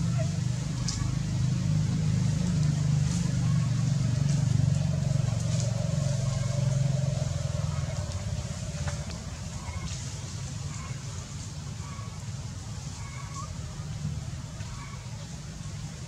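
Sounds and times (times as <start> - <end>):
vehicle engine rumbling: 0.0 - 16.0.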